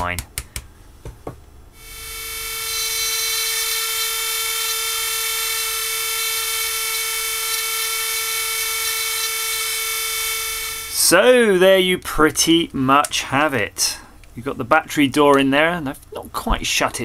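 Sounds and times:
rotary tool whining: 0:01.8 - 0:11.0.

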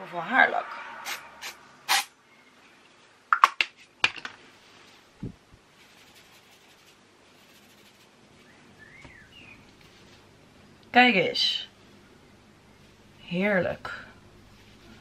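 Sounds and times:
aerosol can hissing: 0:01.0 - 0:02.1
hair rustling: 0:05.8 - 0:08.1.

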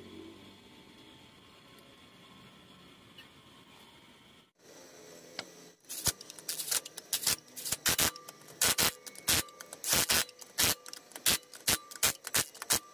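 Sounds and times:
impact wrench rattling bursts: 0:05.9 - 0:12.9.

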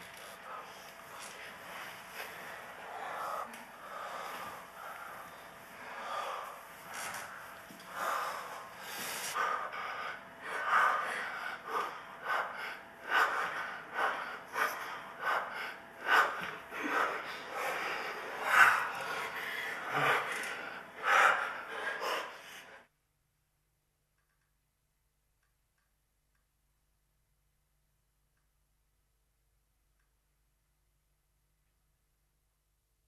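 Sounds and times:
heavy breathing and gasps: 0:00.1 - 0:22.8.

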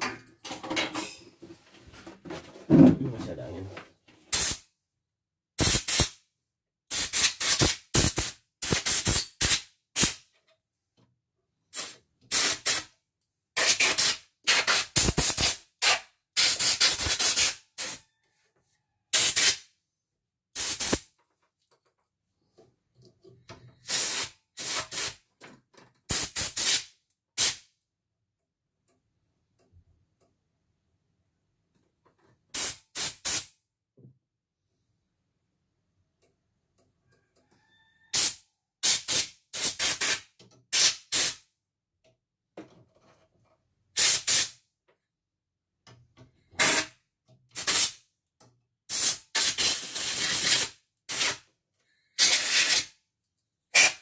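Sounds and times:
compressed air hissing bursts: 0:04.3 - 0:04.6, 0:05.6 - 0:06.2, 0:06.9 - 0:10.2, 0:11.7 - 0:12.8, 0:13.6 - 0:18.0, 0:19.2 - 0:19.6, 0:20.6 - 0:21.1, 0:23.8 - 0:25.2, 0:26.1 - 0:27.6, 0:32.6 - 0:33.5, 0:38.2 - 0:41.4, 0:44.0 - 0:44.6, 0:46.6 - 0:47.0, 0:47.6 - 0:48.0, 0:48.9 - 0:51.4, 0:52.2 - 0:52.9, 0:53.8 - 0:54.0.

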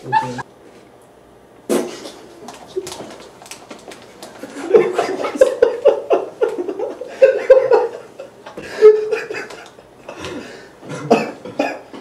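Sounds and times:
men talking: 0:00.0 - 0:00.4
young men laughing: 0:00.0 - 0:00.4, 0:04.4 - 0:11.7.

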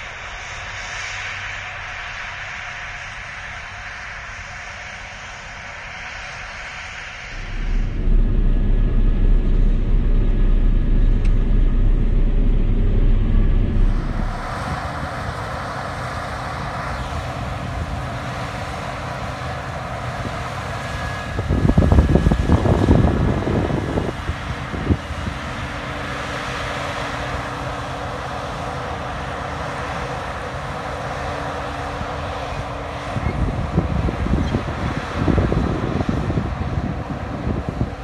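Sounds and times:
combine harvester engine humming: 0:06.1 - 0:38.0
rough rushing sound: 0:07.3 - 0:18.1.

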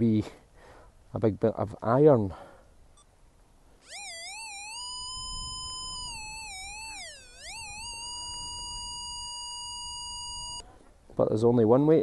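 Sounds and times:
metal detector electronic tone: 0:03.8 - 0:10.6.

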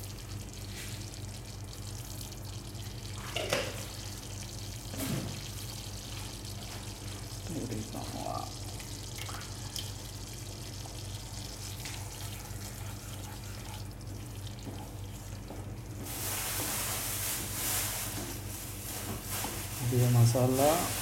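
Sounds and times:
wooden spatula stirring in pan: 0:10.8 - 0:19.8.

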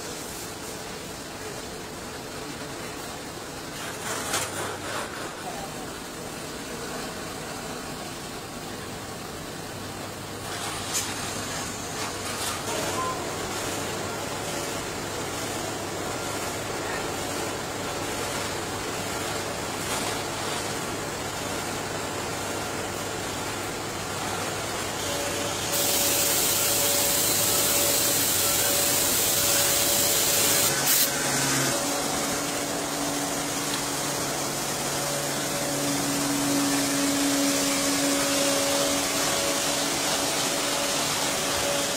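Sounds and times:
machine humming: 0:11.2 - 0:41.9
compressed air hissing: 0:25.7 - 0:31.2.

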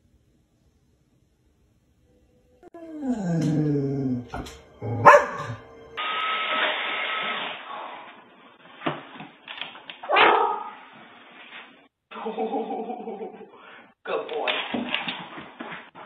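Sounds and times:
dog barking: 0:04.4 - 0:05.6, 0:10.1 - 0:10.8
dog yelp: 0:04.4 - 0:05.6, 0:10.1 - 0:10.8.

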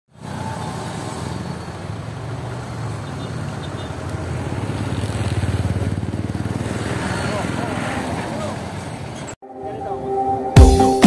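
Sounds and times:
bus engine driving past: 0:00.1 - 0:09.4.

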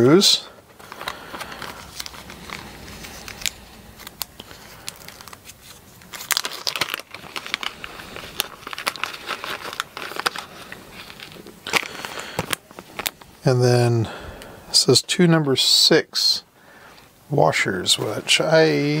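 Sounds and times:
plastic bag crinkling: 0:00.3 - 0:13.5.

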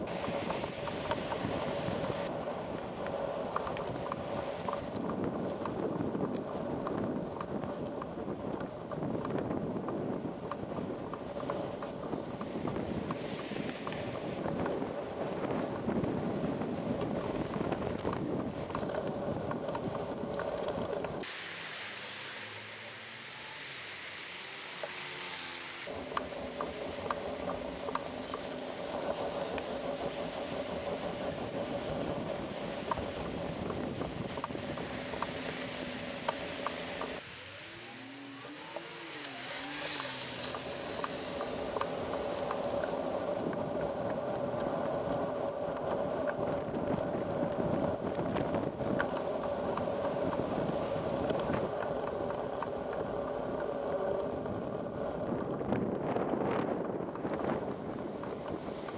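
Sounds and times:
wind on microphone: 0:00.0 - 0:21.3, 0:25.8 - 0:37.3, 0:37.9 - 0:58.9
road noise: 0:00.0 - 0:58.9
motor traffic passing: 0:18.8 - 0:56.3
engine pitch rising and falling: 0:34.5 - 0:43.0.

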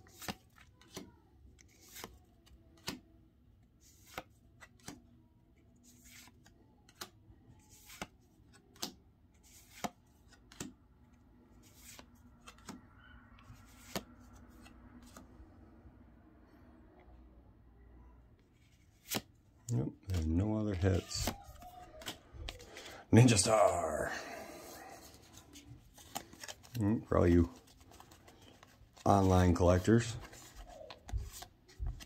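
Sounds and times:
trading cards clicking and sliding: 0:00.0 - 0:03.1, 0:03.8 - 0:05.1, 0:05.8 - 0:10.8, 0:11.6 - 0:15.3, 0:20.1 - 0:32.0.

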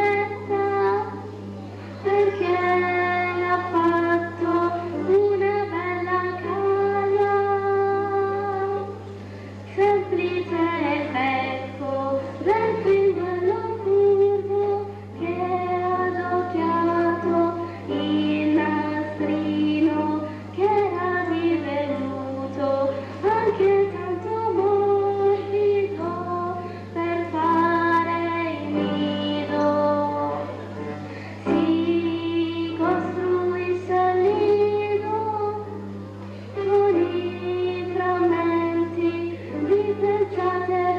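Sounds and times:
piano accompaniment: 0:00.0 - 0:40.9
person singing: 0:09.7 - 0:40.9.

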